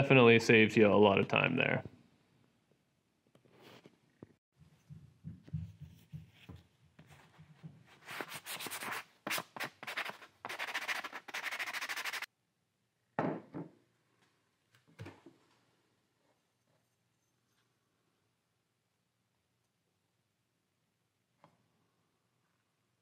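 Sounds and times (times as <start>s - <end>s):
sandpaper scratching wood: 8.0s - 12.3s.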